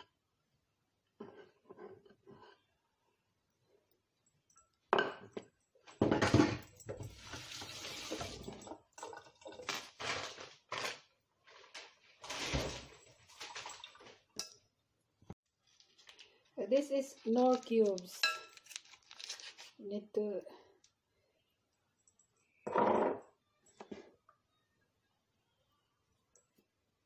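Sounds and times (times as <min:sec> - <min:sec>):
glass bowl and utensils clattering: 0:04.6 - 0:10.1, 0:12.2 - 0:14.6, 0:18.1 - 0:19.2.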